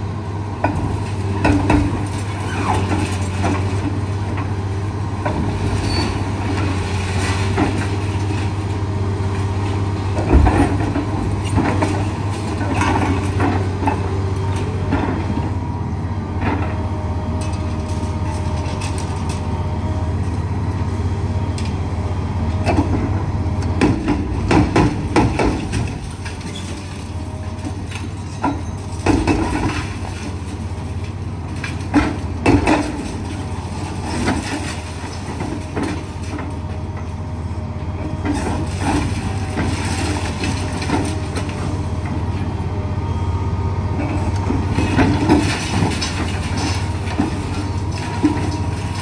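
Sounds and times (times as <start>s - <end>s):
excavator diesel engine droning: 0.0s - 49.0s
hydraulic breaker crashing concrete: 23.8s - 36.6s, 38.2s - 41.7s, 44.5s - 49.0s.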